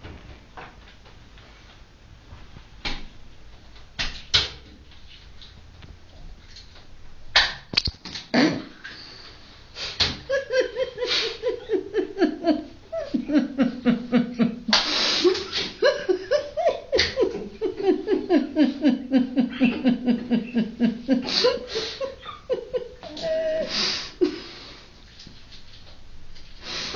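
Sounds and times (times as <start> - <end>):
person laughing hard: 10.2 - 24.5.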